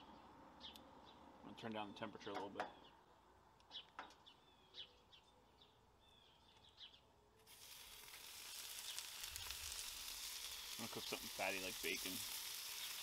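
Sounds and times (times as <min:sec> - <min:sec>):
faint bird chirps: 0:01.8 - 0:07.1
bacon sizzling on a griddle: 0:07.5 - 0:13.0.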